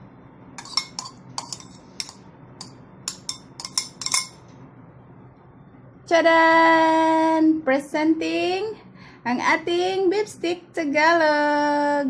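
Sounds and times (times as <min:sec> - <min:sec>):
metal spoon clinking on ceramic plate: 0:00.6 - 0:04.4.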